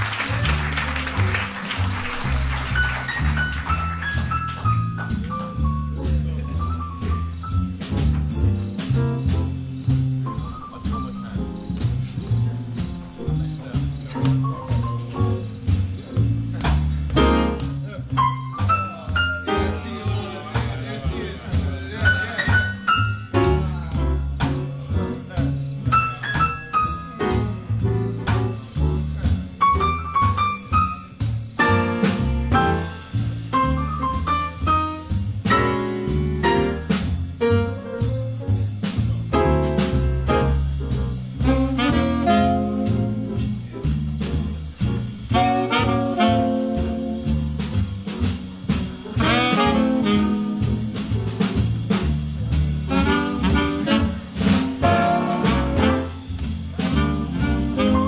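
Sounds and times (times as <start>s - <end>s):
acoustic bass: 0.0s - 58.0s
jazz big band playing: 0.0s - 58.0s
piano chords: 0.0s - 58.0s
saxophone section melody: 41.4s - 43.2s, 45.3s - 47.1s, 49.2s - 50.7s, 52.9s - 56.3s, 56.9s - 58.0s.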